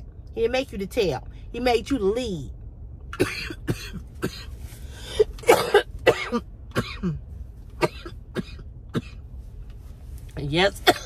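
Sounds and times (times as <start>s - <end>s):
woman coughing: 3.2s - 4.5s, 5.1s - 7.2s, 7.8s - 9.2s.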